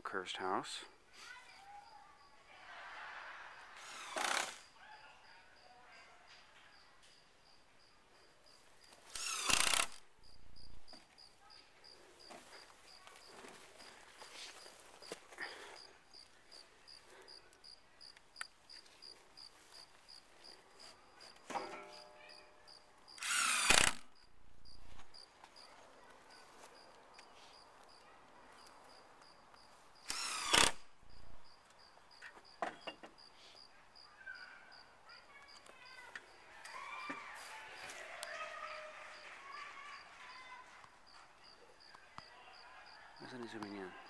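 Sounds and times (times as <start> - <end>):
crickets chirping: 1.2 - 44.0
power drill running: 3.8 - 4.6, 9.1 - 10.0, 23.2 - 24.0, 30.1 - 30.8.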